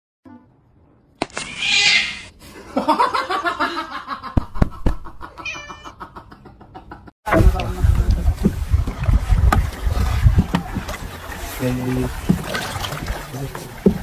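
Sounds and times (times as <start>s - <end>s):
kitten meowing: 5.4s - 5.9s.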